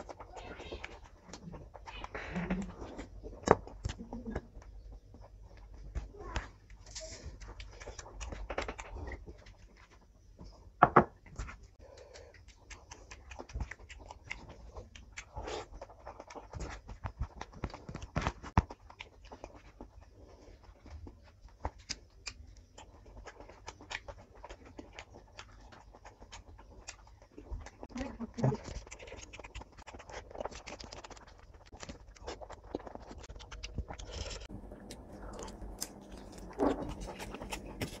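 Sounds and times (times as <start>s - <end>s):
wet mouth clicks and smacks: 11.4s - 16.3s.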